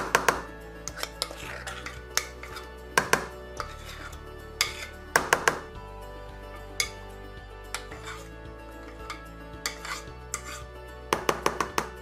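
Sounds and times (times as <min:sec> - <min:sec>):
background music: 0:00.0 - 0:12.0
metal spoon clinking on glass bowl: 0:00.9 - 0:05.0, 0:06.8 - 0:07.1.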